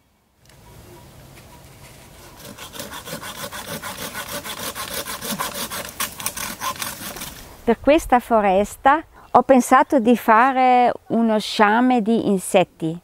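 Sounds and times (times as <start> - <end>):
hand saw cutting wood: 2.2 - 7.4.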